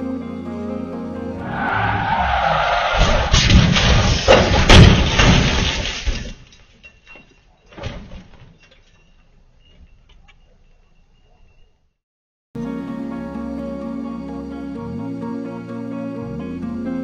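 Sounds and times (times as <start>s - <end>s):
engine and tyre noise: 1.3s - 4.5s
hard crash impacts: 2.7s - 6.4s.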